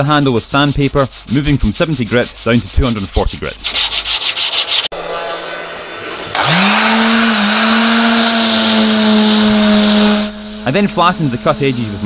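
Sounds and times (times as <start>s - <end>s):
sandpaper hissing on wooden board: 0.0s - 4.9s
sandpaper rubbed on wooden handle: 0.0s - 4.9s
electric sheet sander motor humming: 5.9s - 12.0s.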